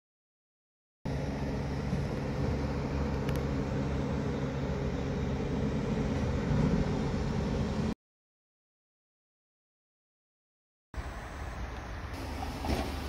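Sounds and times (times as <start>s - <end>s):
road traffic rumble: 1.1s - 8.0s, 11.0s - 13.0s
tyres hissing: 11.0s - 13.0s.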